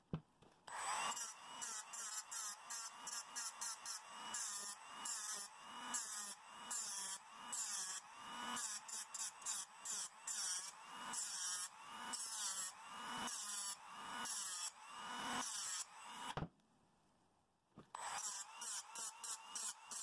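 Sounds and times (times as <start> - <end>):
tool scraping metal: 18.0 - 20.0.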